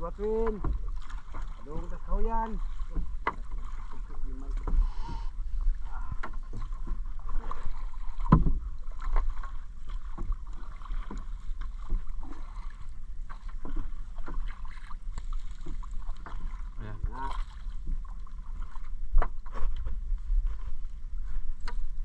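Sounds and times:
net knocking in canoe hull: 0.0s - 5.3s, 6.0s - 19.8s
water splashing and dripping: 5.8s - 19.3s.

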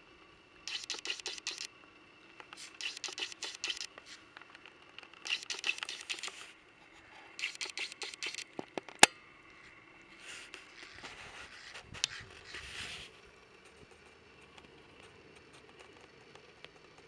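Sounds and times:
sharp loud camera click: 0.7s - 1.7s, 2.6s - 4.0s, 5.2s - 6.5s, 7.4s - 9.1s
zoom lens rubbing: 0.7s - 1.7s, 2.6s - 4.2s, 5.2s - 6.5s, 7.4s - 8.5s, 10.2s - 13.1s.

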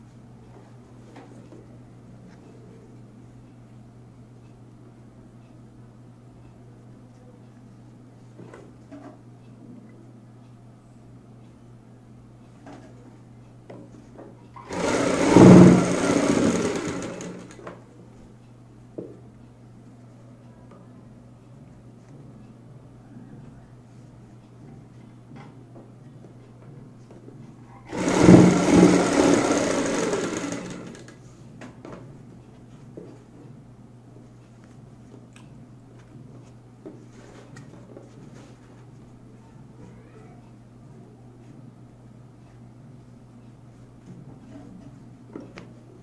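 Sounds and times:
industrial sewing machine stitching: 14.6s - 17.6s, 27.9s - 31.2s.

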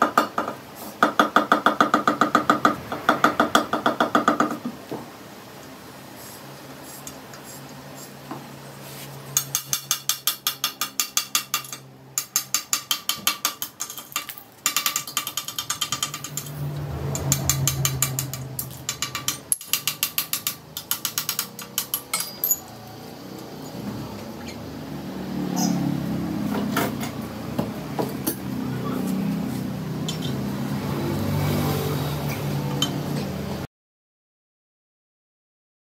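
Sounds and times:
hammer tapping glass: 9.4s - 16.6s, 17.2s - 22.7s.

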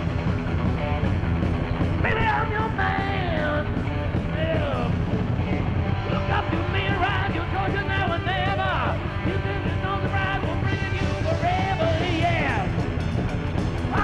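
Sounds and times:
heavy metal band music: 0.0s - 14.0s
wavering lead guitar line: 0.0s - 14.0s.

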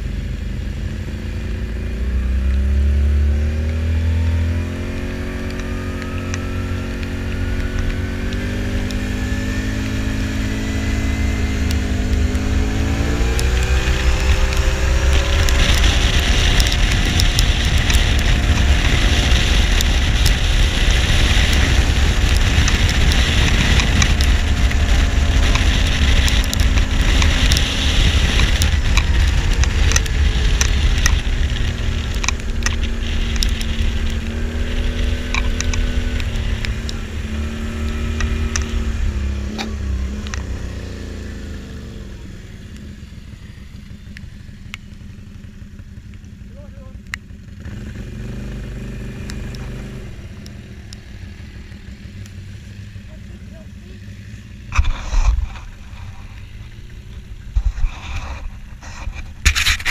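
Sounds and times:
quad bike engine accelerating: 0.0s - 59.9s
wind on microphone: 3.2s - 42.6s, 54.7s - 59.9s.

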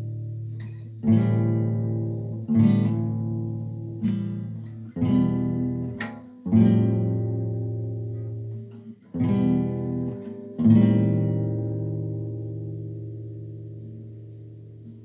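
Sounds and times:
guitar chords strummed: 0.0s - 15.0s.

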